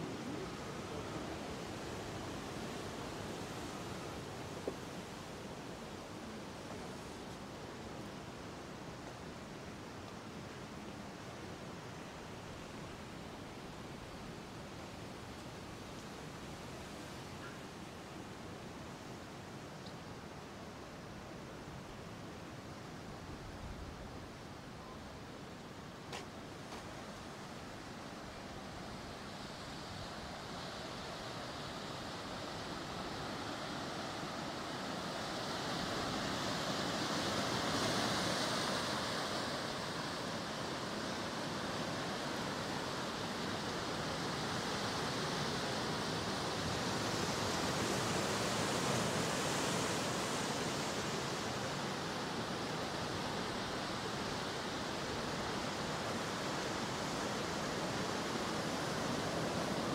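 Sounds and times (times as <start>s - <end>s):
ocean waves washing: 26.5s - 59.9s.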